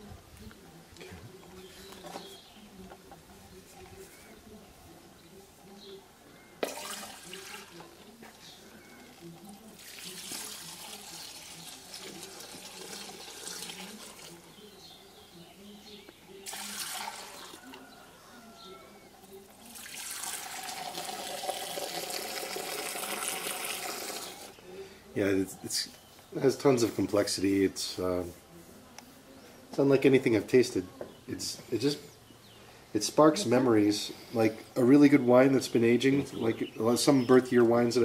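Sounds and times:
liquid pouring and splashing into bowl: 0:06.6 - 0:07.8, 0:09.8 - 0:14.4, 0:16.4 - 0:17.6, 0:19.7 - 0:24.5.

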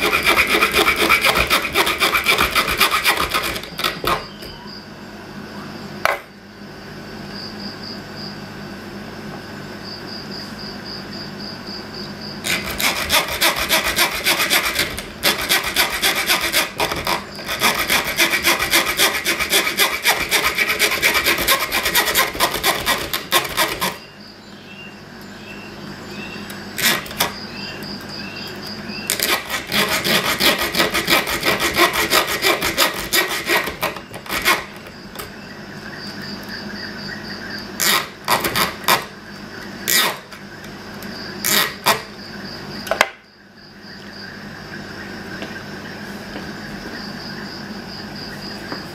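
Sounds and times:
saw rasping through metal tube: 0:00.0 - 0:04.4, 0:12.4 - 0:24.1, 0:26.8 - 0:27.4, 0:29.1 - 0:34.8.

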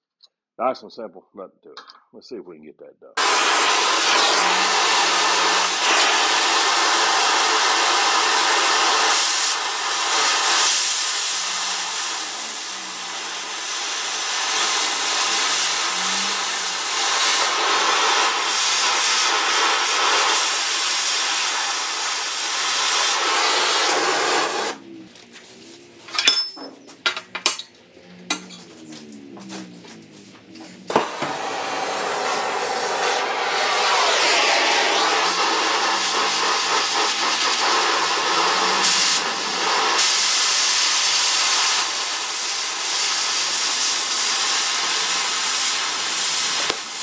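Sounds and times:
cutting torch hissing: 0:03.2 - 0:24.8, 0:30.8 - 0:47.0
metal clinks and knocks: 0:26.1 - 0:28.9.

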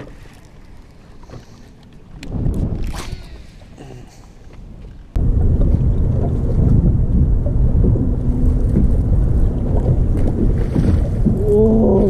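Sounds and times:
wind blowing across microphone: 0:02.1 - 0:03.8, 0:05.1 - 0:12.0.

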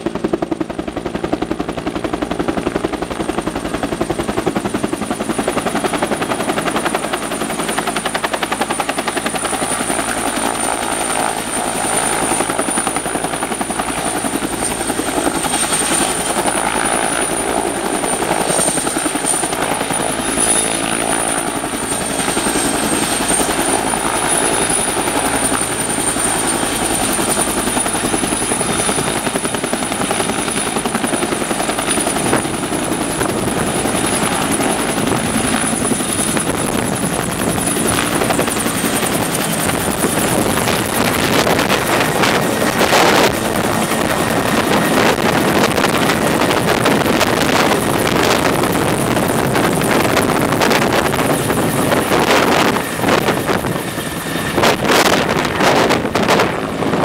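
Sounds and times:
helicopter rotor and turbine: 0:00.0 - 0:57.0
gusty wind buffeting: 0:03.5 - 0:57.0.

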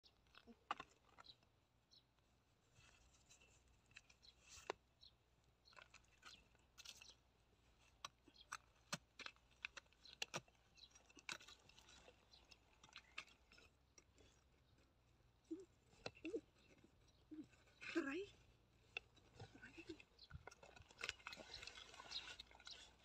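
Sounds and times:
hoe chopping and scraping dry mud: 0:07.9 - 0:14.2.

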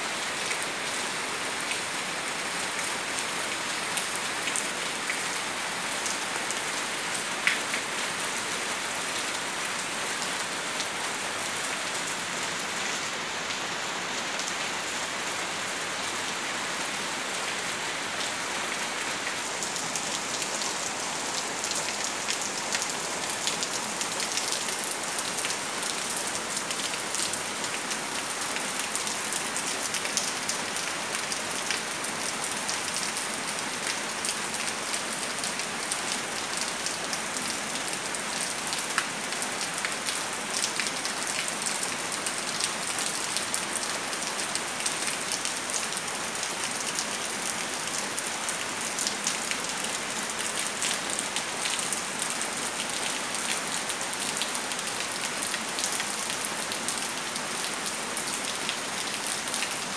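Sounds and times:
rain on plants and ground: 0:00.0 - 0:59.9.

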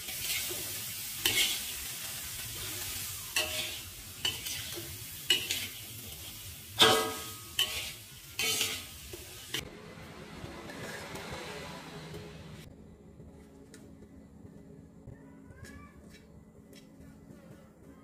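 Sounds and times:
faint sizzle from hot pan: 0:00.0 - 0:09.6
metal spatula scraping a wok: 0:00.0 - 0:09.6.

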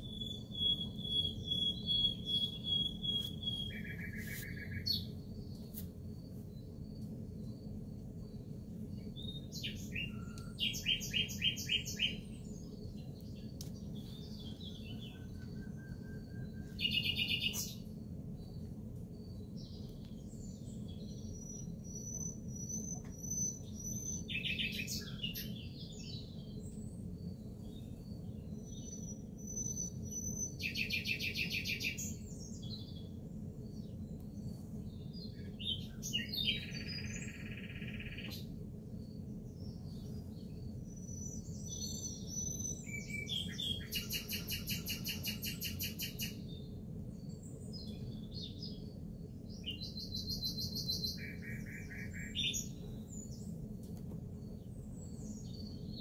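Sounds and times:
songbirds singing: 0:00.0 - 0:56.0
steady low hum: 0:00.0 - 0:56.0.

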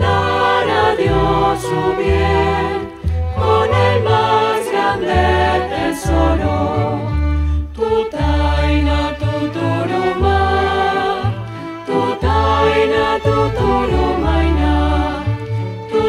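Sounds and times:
choir singing: 0:00.0 - 0:16.0
string ensemble: 0:00.0 - 0:16.0.

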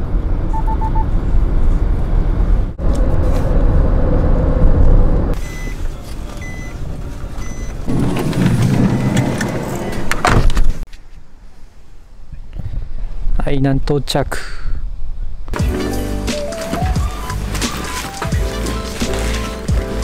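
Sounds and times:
car engine and road rumble: 0:00.0 - 0:12.4, 0:15.6 - 0:20.0
short high beeps: 0:00.5 - 0:01.2, 0:05.4 - 0:05.8.

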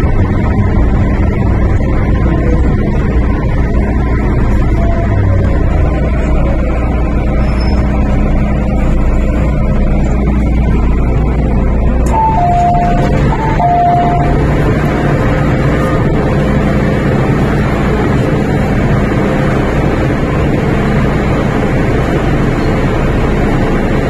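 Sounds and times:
train rumbling on track: 0:00.0 - 0:24.0
two-note chime: 0:12.1 - 0:14.6.

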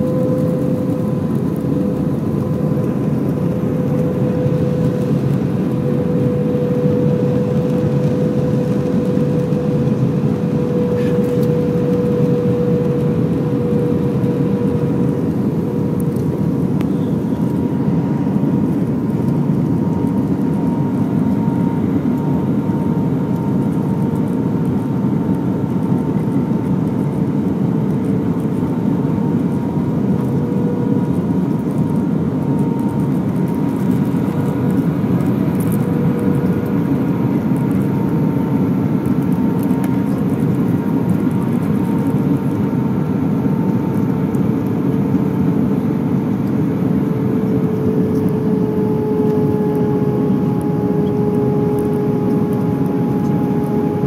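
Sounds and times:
jet engines roaring: 0:00.0 - 0:54.0
steady engine tone: 0:00.0 - 0:54.0.

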